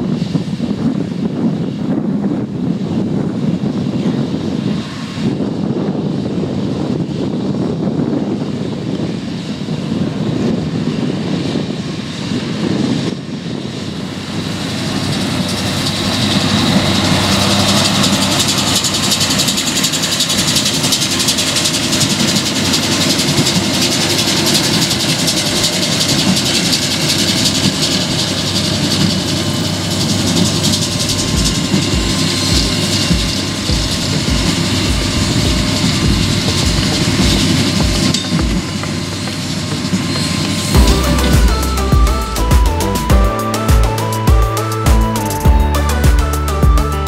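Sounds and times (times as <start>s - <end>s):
tractor diesel engine running: 10.2s - 47.0s
low thumps: 31.1s - 38.6s, 40.8s - 47.0s.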